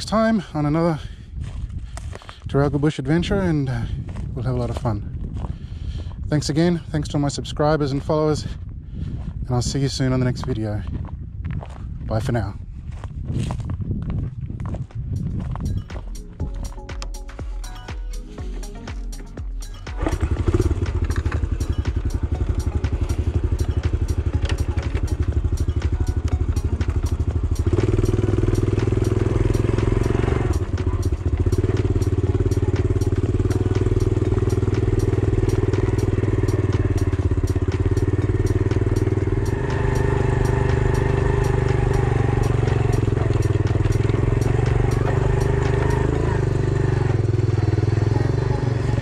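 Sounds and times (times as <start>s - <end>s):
motorbike engine running: 12.9s - 49.0s.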